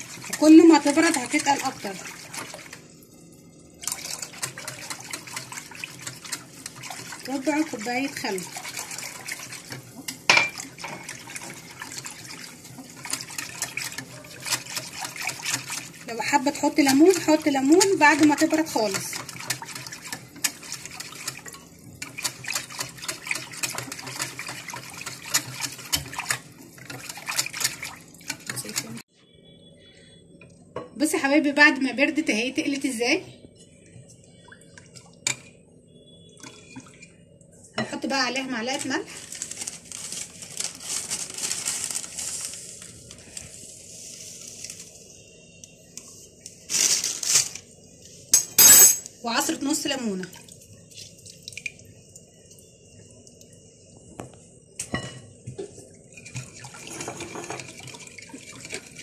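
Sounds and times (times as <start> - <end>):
whisk sloshing sauce: 0.0 - 2.8, 3.9 - 29.0, 56.1 - 59.0.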